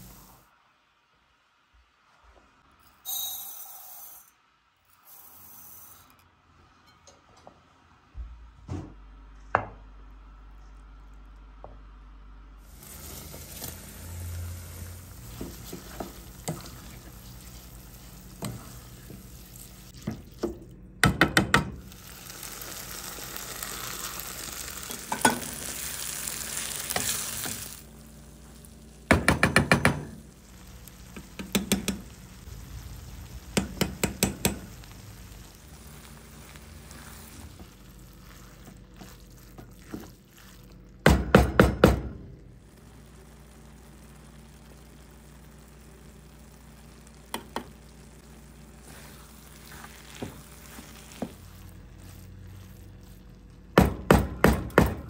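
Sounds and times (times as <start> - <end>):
food frying in oil: 12.6 - 20.7, 21.8 - 29.3, 30.0 - 41.1, 42.5 - 53.7
spoon stirring in pan: 15.2 - 20.5, 36.2 - 40.8, 48.7 - 53.2
utensil tapping on pan: 29.1 - 30.1, 31.2 - 32.2, 33.6 - 34.7, 47.3 - 47.7.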